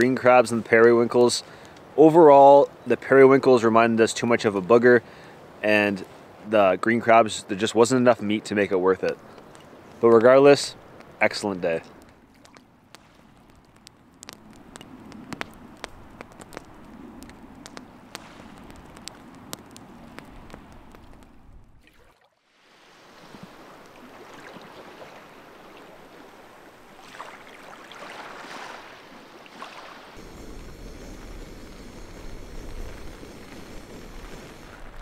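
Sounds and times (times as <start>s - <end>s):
campfire crackling and popping: 0.0s - 22.1s, 30.2s - 35.0s
water lapping at the shore: 8.8s - 35.0s.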